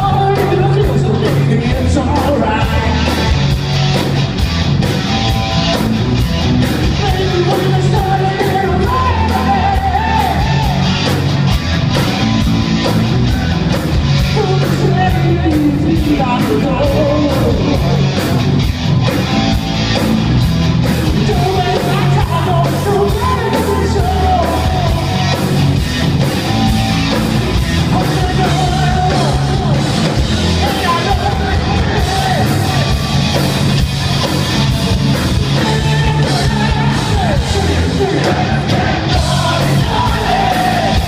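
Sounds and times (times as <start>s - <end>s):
man singing: 0.0s - 3.5s, 6.8s - 10.8s, 14.3s - 18.3s, 21.1s - 25.3s, 27.8s - 32.8s, 35.4s - 41.0s
drums: 0.0s - 41.0s
electric guitars: 0.0s - 41.0s.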